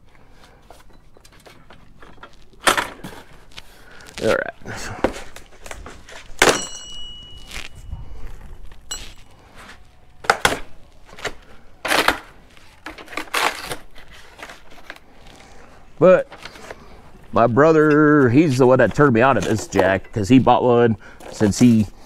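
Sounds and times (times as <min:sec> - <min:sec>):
cardboard tearing and crumpling: 0:03.2 - 0:06.4, 0:09.4 - 0:15.7.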